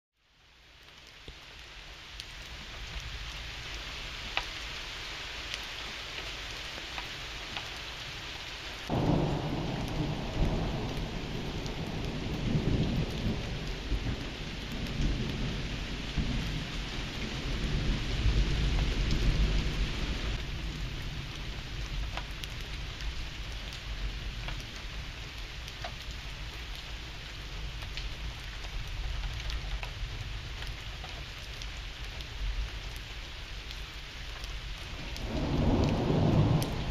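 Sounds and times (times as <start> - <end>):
steady rain falling: 0.2 - 36.9
thunder rumbling: 8.9 - 21.0, 34.8 - 36.9.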